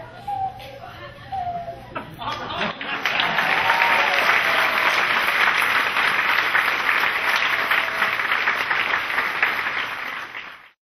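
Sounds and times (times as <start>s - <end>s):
audience applauding: 2.6s - 10.8s.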